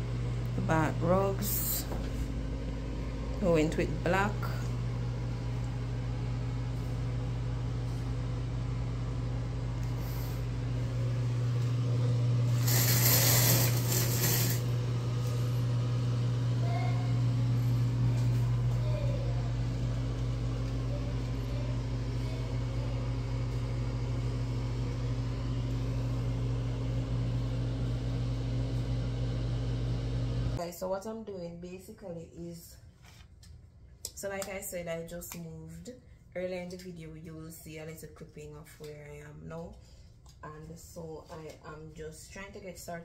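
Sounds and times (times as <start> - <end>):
low mechanical hum: 0.0 - 43.0
shower curtain scraping along rod: 12.5 - 14.7.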